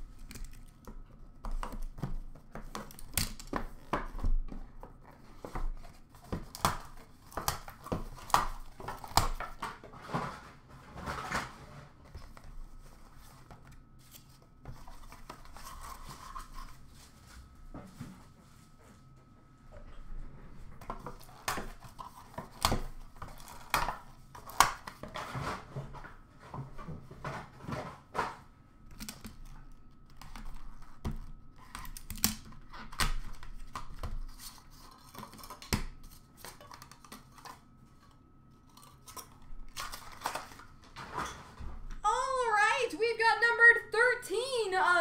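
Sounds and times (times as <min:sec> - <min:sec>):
faint high hum: 0:03.6 - 0:24.6, 0:33.4 - 0:45.0.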